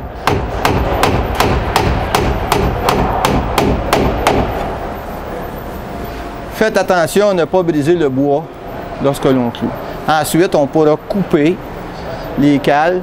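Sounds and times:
hammer driving nail into wood: 0.3 - 4.5.

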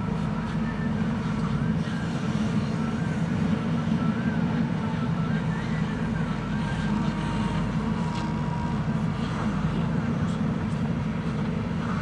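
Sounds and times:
diesel engine running under load: 0.0 - 12.0
faint high whine: 0.0 - 12.0.

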